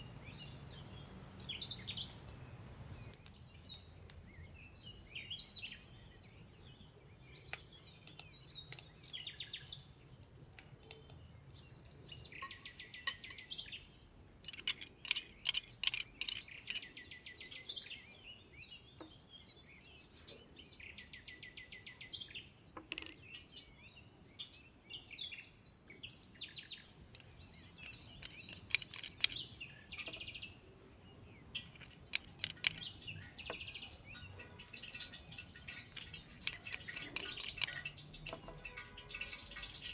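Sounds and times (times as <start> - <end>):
small birds chirping: 0.0 - 39.9
metal spoon clinking on bowl: 12.4 - 13.5, 35.6 - 39.7.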